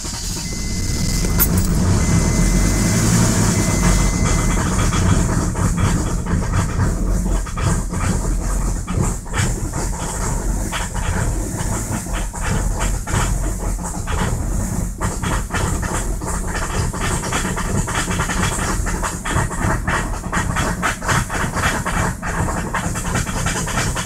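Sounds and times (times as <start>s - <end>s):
diesel engine idling: 0.0s - 13.4s.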